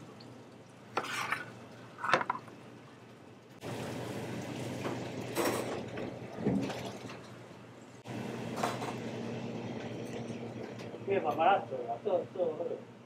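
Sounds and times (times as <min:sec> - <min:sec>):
low machine hum: 0:02.6 - 0:13.0.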